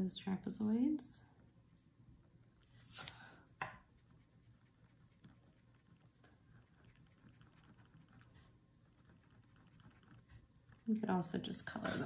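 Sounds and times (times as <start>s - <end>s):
pencil eraser rubbing on paper: 11.7s - 12.0s.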